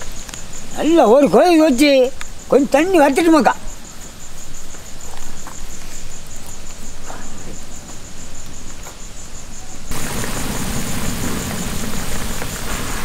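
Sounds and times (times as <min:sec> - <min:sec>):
crickets chirping: 0:00.0 - 0:13.0
faint ticks: 0:02.1 - 0:02.4
water boiling in a pot: 0:09.9 - 0:13.0.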